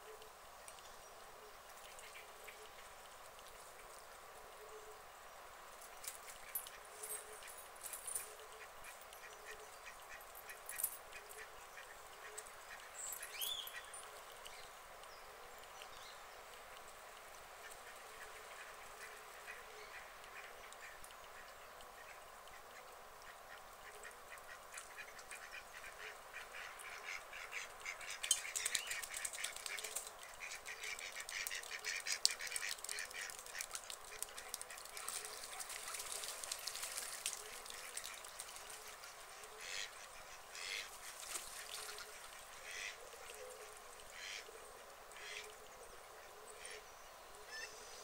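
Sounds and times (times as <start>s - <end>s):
ducks quacking: 23.5s - 29.8s, 38.8s - 40.9s, 41.6s - 43.0s, 44.1s - 44.4s.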